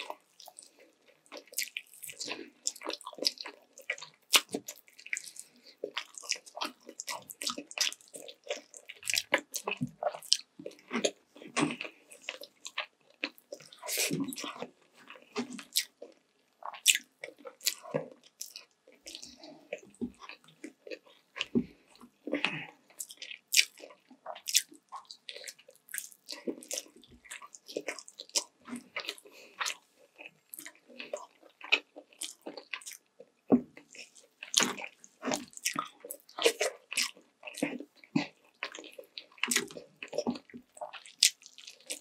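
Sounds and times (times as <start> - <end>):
person chewing food: 0.0 - 42.0.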